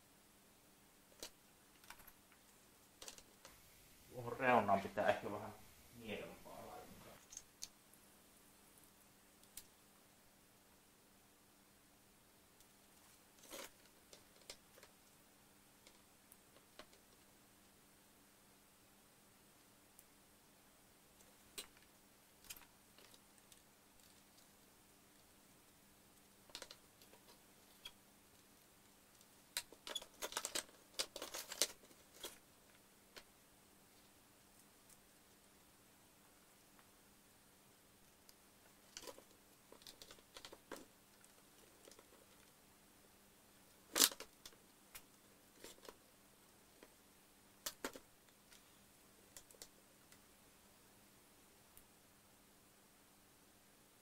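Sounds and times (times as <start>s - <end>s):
faint steady hum: 0.0s - 54.0s
plastic parts clicking and rattling: 3.0s - 3.5s, 13.4s - 15.0s, 26.5s - 28.0s, 29.1s - 33.3s, 38.8s - 42.5s, 43.9s - 46.0s, 47.6s - 48.7s.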